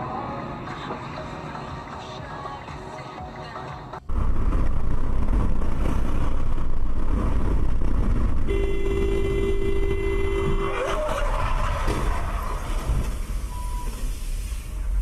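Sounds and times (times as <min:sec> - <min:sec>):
car road and wind noise: 0:00.0 - 0:15.0
car horn long blast: 0:08.5 - 0:10.9.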